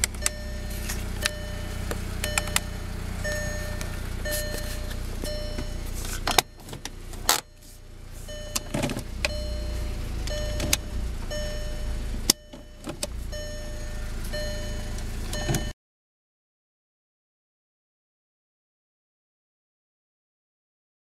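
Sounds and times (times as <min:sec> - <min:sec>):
gear selector clicks: 0:00.0 - 0:02.8, 0:10.2 - 0:10.9
car engine idling: 0:00.0 - 0:15.7
electronic warning chime: 0:00.2 - 0:05.9, 0:08.3 - 0:15.7.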